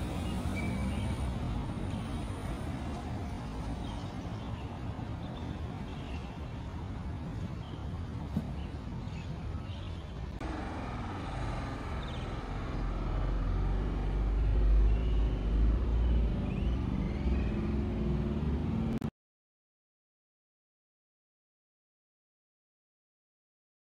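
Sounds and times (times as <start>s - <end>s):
low rumble of road traffic: 0.0s - 19.1s.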